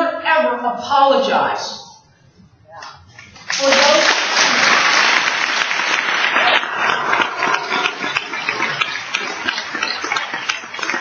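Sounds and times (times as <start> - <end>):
audience applause: 3.4 - 11.0.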